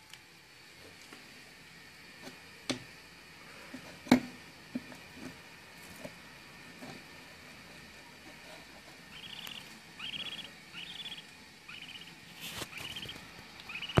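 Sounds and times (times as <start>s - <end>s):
budgerigar chirping: 9.1s - 14.0s.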